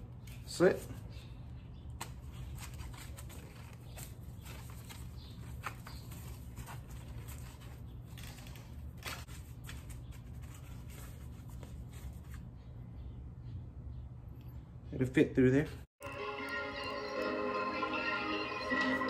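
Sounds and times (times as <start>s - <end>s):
rustling and scraping: 2.0s - 12.7s.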